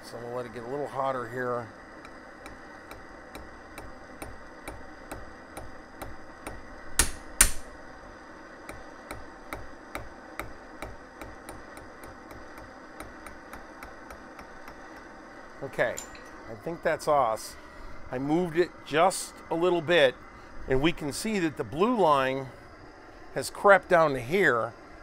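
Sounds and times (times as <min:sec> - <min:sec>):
torch flame hissing: 0:00.0 - 0:25.0
hammer taps on hot steel: 0:02.0 - 0:07.7, 0:08.6 - 0:15.1.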